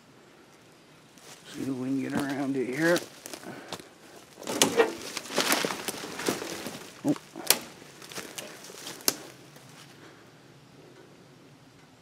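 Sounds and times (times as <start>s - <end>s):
branches brushing past: 1.1s - 10.0s
twigs snapping underfoot: 1.2s - 9.9s.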